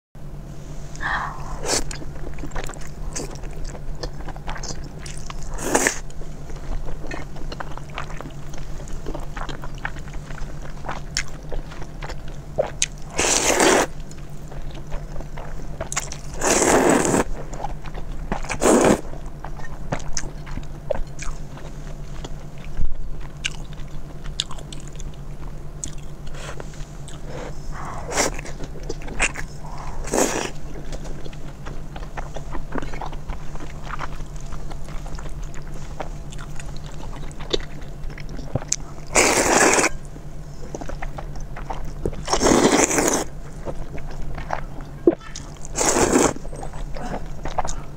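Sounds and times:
steady low hum: 0.2 - 47.9
wet chewing: 1.6 - 47.9
slurping noodles: 5.2 - 6.0, 13.1 - 14.0, 16.0 - 17.3, 18.4 - 19.1, 29.6 - 30.6, 39.1 - 40.0, 42.2 - 43.3, 45.7 - 46.5.

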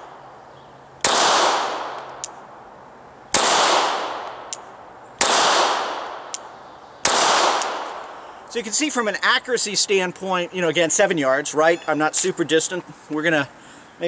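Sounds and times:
pistol shots: 1.0 - 2.2, 3.3 - 4.5, 5.2 - 6.3, 7.0 - 8.1.

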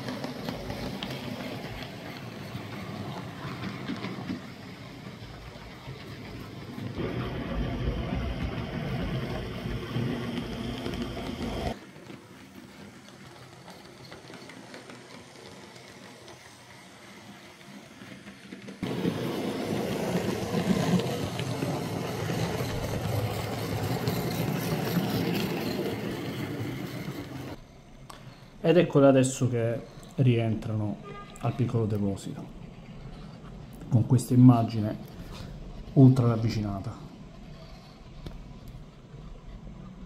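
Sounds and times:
wheels rattling on rails: 0.0 - 30.8
model train motors whirring: 7.8 - 27.7.

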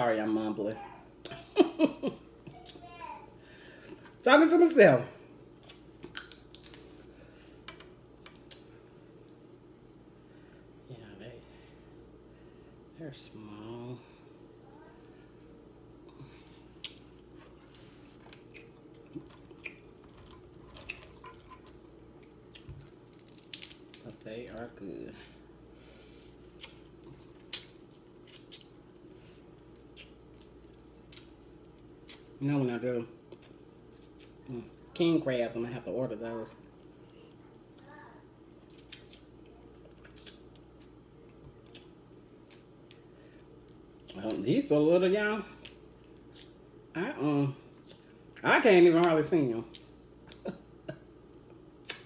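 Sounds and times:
low room hum: 0.0 - 52.0
crab shells cracking: 22.3 - 24.2.

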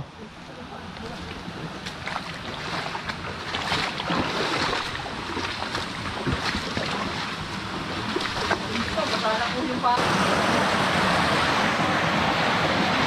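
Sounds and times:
flowing water rushing: 0.0 - 13.0
feet splashing through creek: 0.9 - 10.2.

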